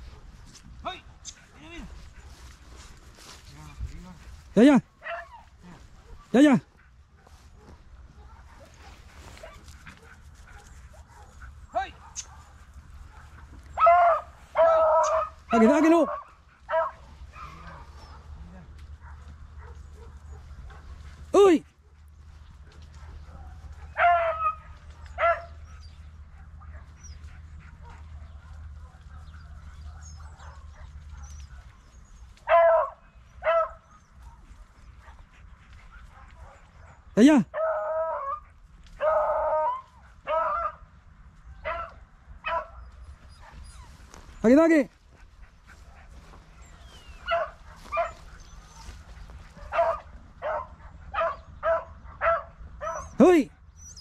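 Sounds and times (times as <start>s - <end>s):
dog barking: 5.0s - 6.5s, 7.2s - 21.0s, 22.6s - 31.8s, 32.4s - 35.3s, 35.9s - 40.9s, 41.6s - 43.7s, 45.8s - 53.3s.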